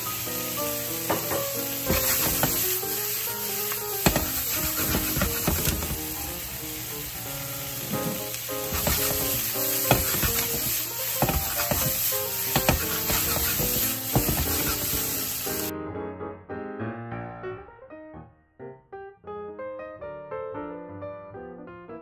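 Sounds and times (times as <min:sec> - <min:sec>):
meat and vegetables sizzling in pan: 0:00.0 - 0:15.7
background piano music: 0:00.0 - 0:22.0.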